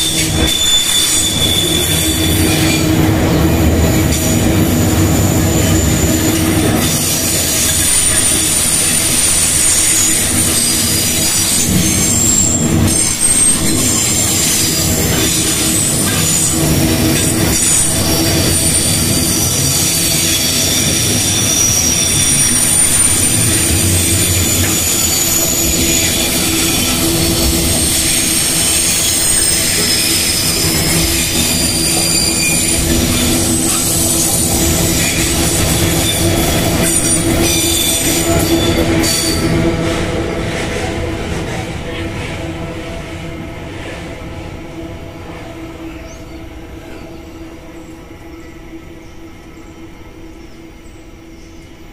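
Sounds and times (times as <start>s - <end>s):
train wheels squealing: 0.0s - 42.8s, 44.7s - 51.9s
wheels rumbling and clattering on rail: 0.0s - 51.9s.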